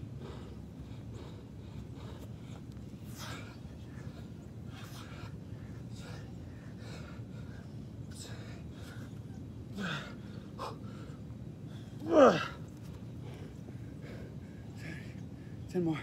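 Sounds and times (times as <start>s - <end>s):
man grunting: 12.0s - 12.6s.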